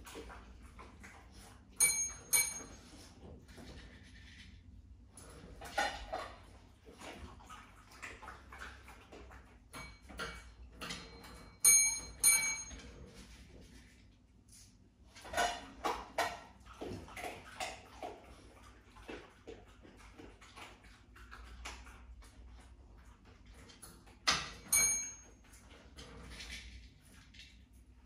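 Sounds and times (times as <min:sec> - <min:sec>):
small bell ringing: 0:01.8 - 0:02.8, 0:11.6 - 0:12.8, 0:24.7 - 0:25.4.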